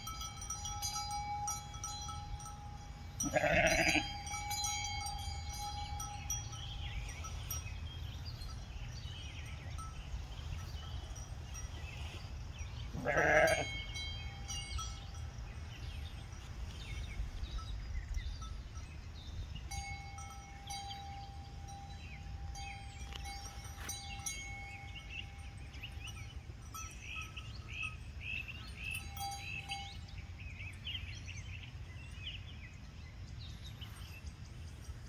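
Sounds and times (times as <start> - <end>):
sheep bleating: 3.2 - 4.1, 13.0 - 13.7.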